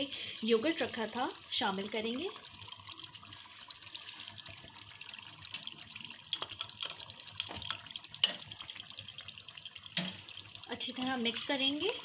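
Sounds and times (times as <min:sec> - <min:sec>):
meat sizzling in a pot: 0:00.0 - 0:12.0
spoon knocking and scraping pot: 0:06.3 - 0:08.5, 0:10.0 - 0:10.2.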